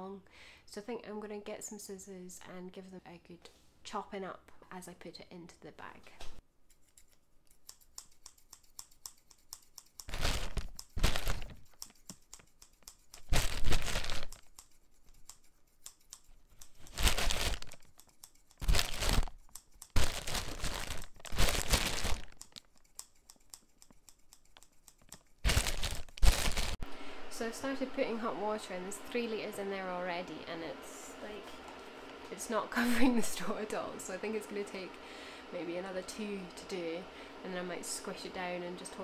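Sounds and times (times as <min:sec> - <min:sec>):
scissors clicking: 0:06.7 - 0:26.2
plastic bag crinkling: 0:10.1 - 0:11.6, 0:13.3 - 0:14.4, 0:16.8 - 0:17.8, 0:18.6 - 0:19.4, 0:20.0 - 0:22.7, 0:25.4 - 0:26.8
dry straw rustling: 0:20.0 - 0:22.3.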